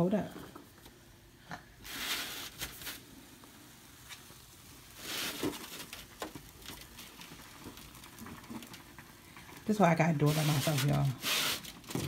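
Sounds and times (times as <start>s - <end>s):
rubber balloon rustling: 1.8s - 3.2s, 4.9s - 7.2s, 10.2s - 12.0s.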